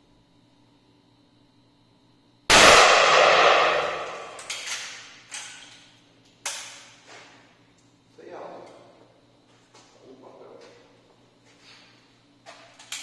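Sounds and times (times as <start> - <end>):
rifle shot echoing: 2.5 - 4.6.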